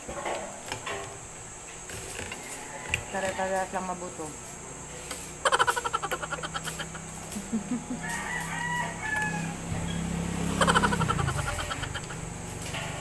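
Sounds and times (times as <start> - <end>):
rooster crowing: 2.3 - 3.9, 5.4 - 12.4
low engine hum: 8.8 - 13.0.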